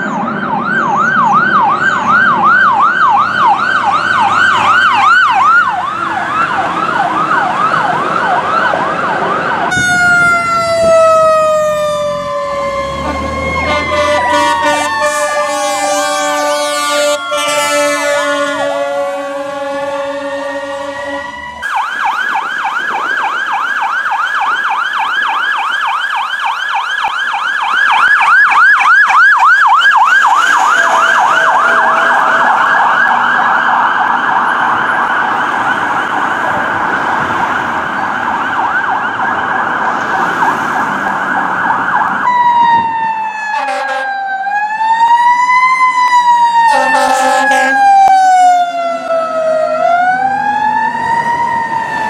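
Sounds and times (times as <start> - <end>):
fire truck siren: 0.0 - 52.0
air horn blasts: 13.0 - 21.5, 30.2 - 33.1, 43.5 - 44.2, 46.7 - 47.9.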